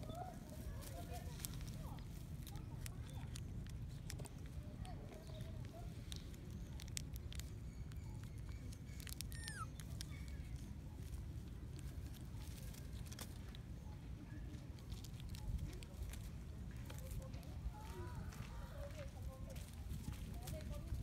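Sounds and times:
plastic wrapper crinkling: 0.5 - 13.6.

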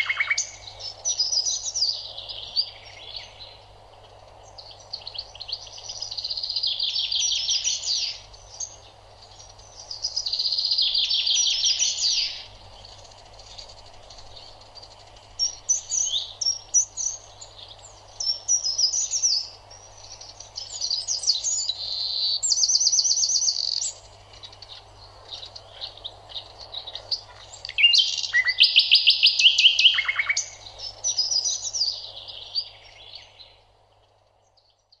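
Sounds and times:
birds chirping and trilling: 0.0 - 35.0
faint steady hum: 0.0 - 35.0.

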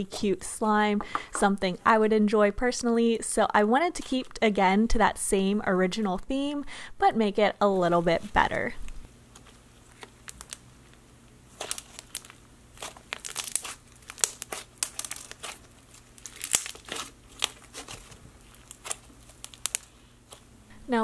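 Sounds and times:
slime crackling and popping: 9.8 - 10.7, 11.5 - 20.5.

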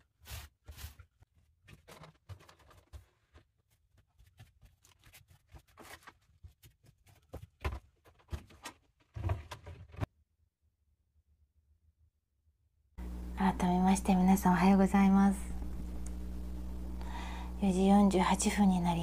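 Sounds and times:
rustling of things handled: 0.0 - 10.1.

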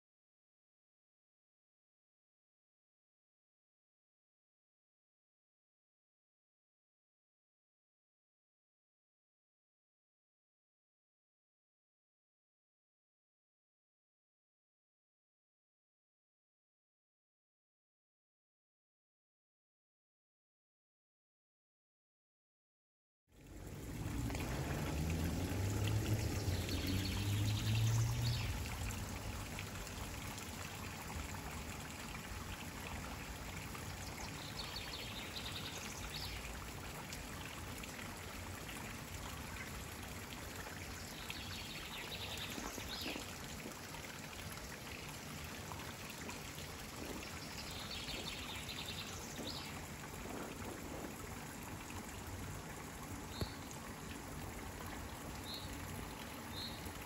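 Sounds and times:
water rushing over weir: 23.4 - 57.0.

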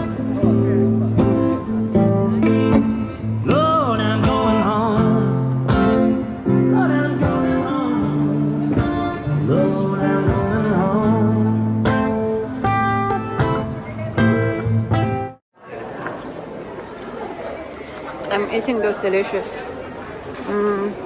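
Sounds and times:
guitars playing: 0.0 - 15.4
man singing: 3.4 - 12.3.

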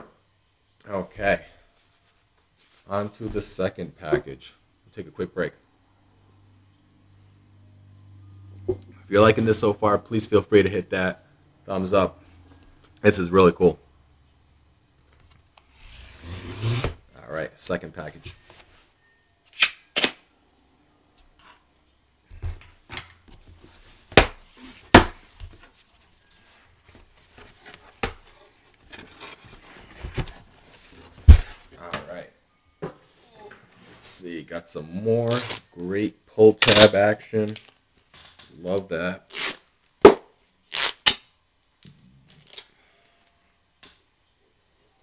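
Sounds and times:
cardboard ripping: 15.8 - 17.0, 40.7 - 41.2.

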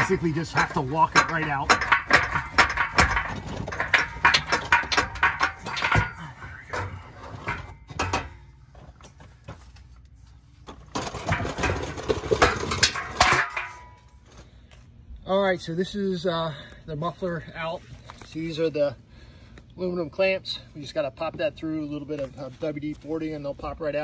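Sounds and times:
exhaust pipe clanking metal on metal: 0.0 - 9.7, 10.7 - 14.4.

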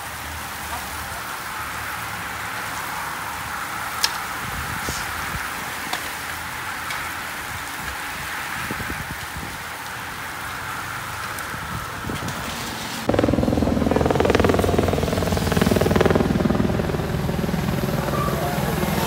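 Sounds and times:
bicycle tyres on wet road: 0.0 - 13.1
rain hissing: 0.0 - 19.0
engine running with fast pulse: 13.1 - 19.0.

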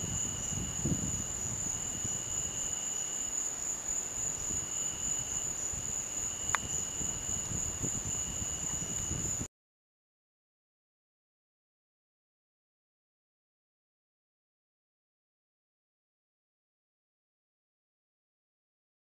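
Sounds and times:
night insects trilling: 0.0 - 9.5.

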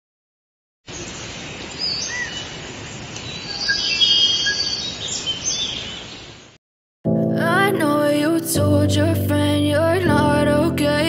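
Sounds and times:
bird calls and chirps: 0.9 - 6.5
steady forest hiss: 0.9 - 6.5.

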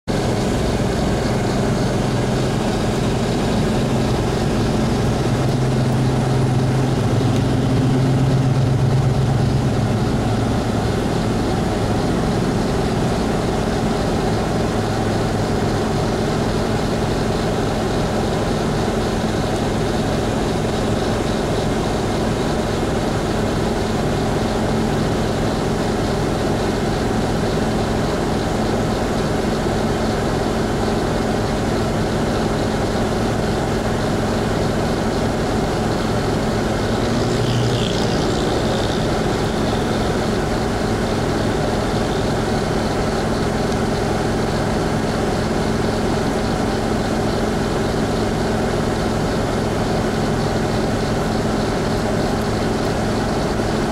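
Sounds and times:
low engine hum: 0.0 - 53.9
train coaches rumbling by: 0.1 - 53.9.

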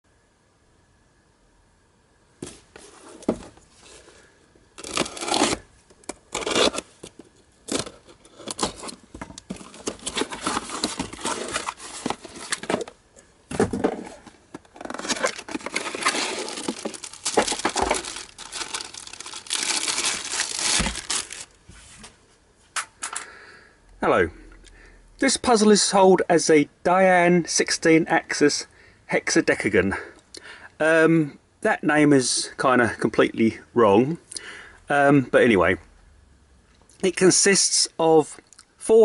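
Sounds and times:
cardboard box opening: 4.8 - 5.6, 7.7 - 13.0, 13.6 - 21.5
paper wrapping tearing: 4.8 - 5.7, 6.3 - 6.9, 14.8 - 21.6.

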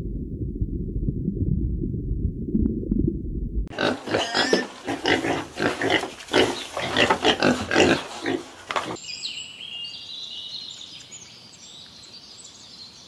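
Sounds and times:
low muffled rumble: 0.0 - 3.7
piglets grunting: 3.7 - 9.0.

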